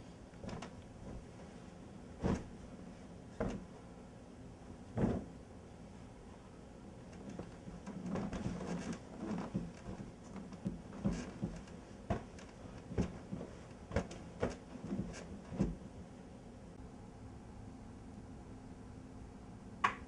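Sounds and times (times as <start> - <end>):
bedding rustling: 0.0 - 16.2.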